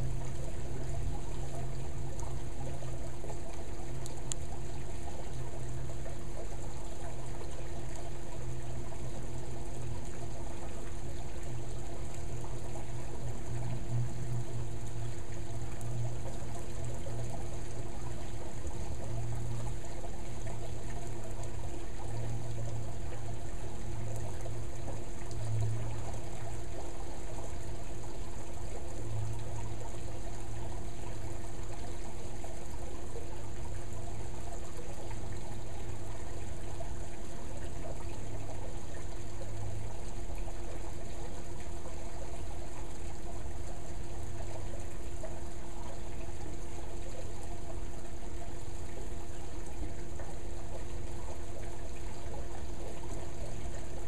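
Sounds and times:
faint steady hum: 0.0s - 54.0s
water pouring and trickling: 0.0s - 54.0s.

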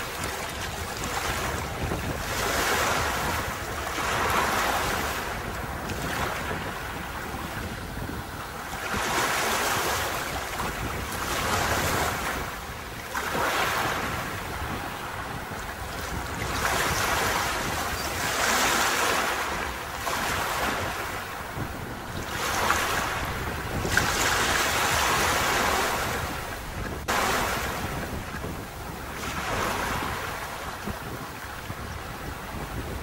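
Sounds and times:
waves breaking on beach: 0.0s - 33.0s.

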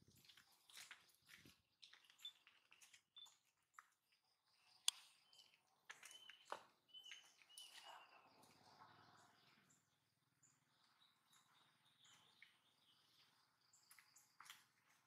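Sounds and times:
faint high-pitched chirps: 1.9s - 3.5s, 4.4s - 14.5s.

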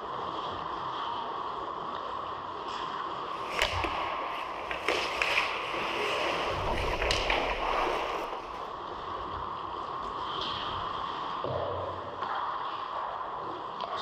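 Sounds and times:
skate blades scraping ice: 3.3s - 8.7s
sticks and puck clacking: 3.3s - 8.7s.

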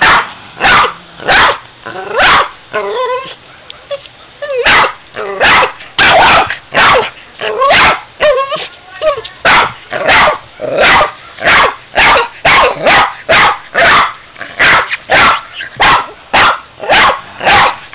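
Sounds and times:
dog barking sharply: 0.0s - 1.6s, 2.2s - 2.5s, 4.7s - 7.1s, 9.5s - 17.8s
dog whining: 1.9s - 5.6s, 7.0s - 9.2s.

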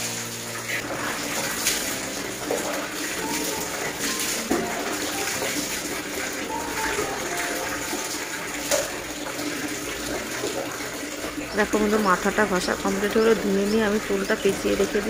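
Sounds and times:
water splash: 0.0s - 13.0s
tap water pouring into a basin: 0.0s - 15.0s.

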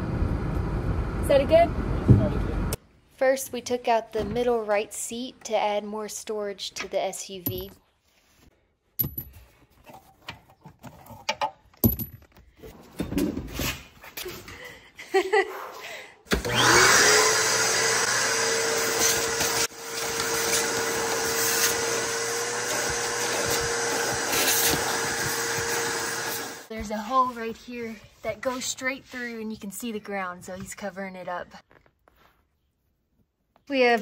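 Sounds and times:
metal tools clattering: 9.0s - 12.4s
vacuum cleaner motor whine: 16.3s - 26.7s
nozzle sweeping carpet: 18.3s - 27.6s.

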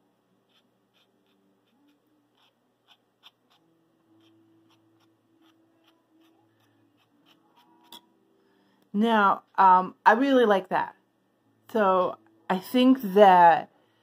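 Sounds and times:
quiet steady hum: 0.0s - 14.0s
paintbrush ticking on paper: 0.5s - 8.0s.

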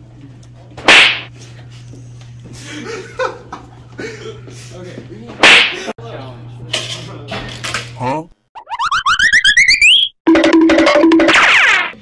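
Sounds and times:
boys laughing: 2.6s - 4.7s.

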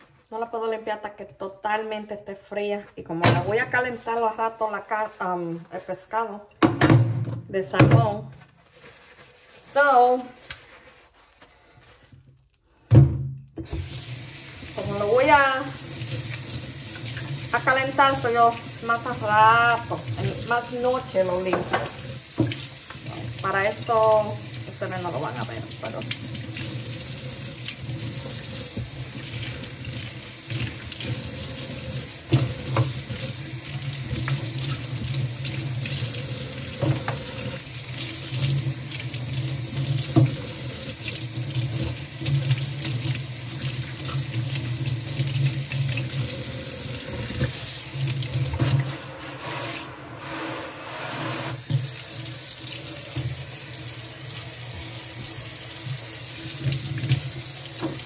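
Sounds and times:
faucet running into metal sink: 13.6s - 50.6s, 51.2s - 58.0s.

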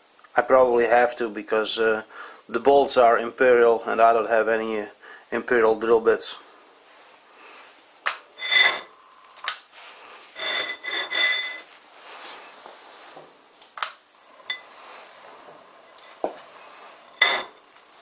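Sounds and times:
metal-on-metal clinks and knocks: 8.4s - 9.5s, 14.3s - 14.8s, 15.4s - 18.0s.

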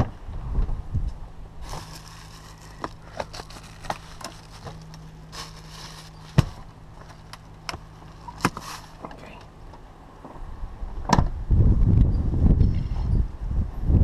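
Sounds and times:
steady low hum: 0.0s - 14.0s
plastic bags crinkling: 1.6s - 9.3s.

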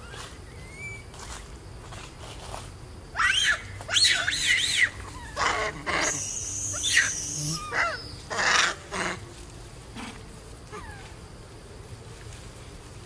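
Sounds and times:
steady high buzz: 0.0s - 13.0s
baby monkey screaming: 3.2s - 9.2s.

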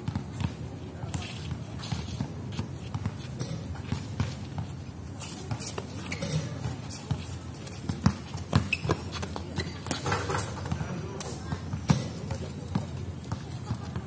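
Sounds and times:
basketball bouncing on hard court: 0.0s - 1.2s, 7.8s - 14.0s
players' shuffling footsteps: 0.0s - 14.0s.

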